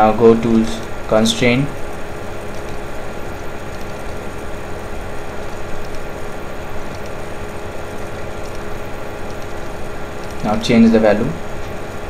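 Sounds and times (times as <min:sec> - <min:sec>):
background hum with hiss: 0:00.0 - 0:12.0.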